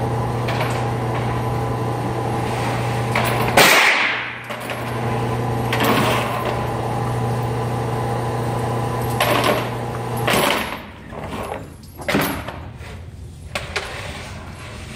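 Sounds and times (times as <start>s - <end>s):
sharp echoing bangs: 3.5s - 4.5s.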